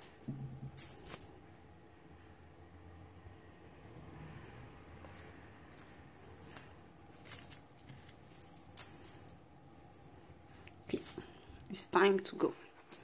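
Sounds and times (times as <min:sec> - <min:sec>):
metal chain clinking: 0:00.0 - 0:01.4, 0:05.0 - 0:11.4.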